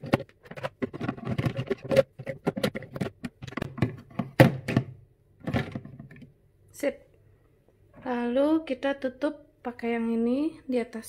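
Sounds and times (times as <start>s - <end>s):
plastic bottles clattering: 0.0s - 6.3s.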